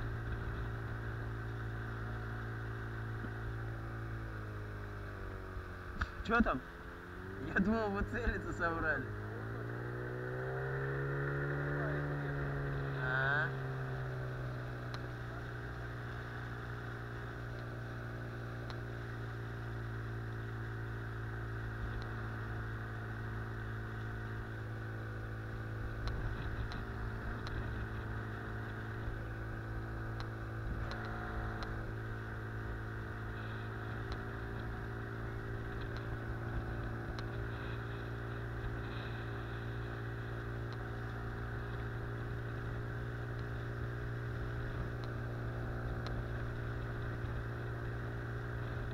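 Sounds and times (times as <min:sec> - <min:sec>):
outboard motor running: 0:00.0 - 0:48.9.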